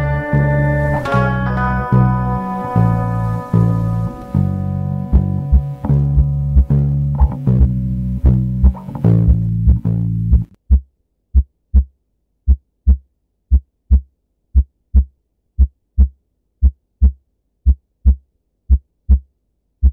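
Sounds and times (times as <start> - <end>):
music: 0.0 - 10.6
heartbeat thumps: 4.4 - 11.9, 12.5 - 19.9.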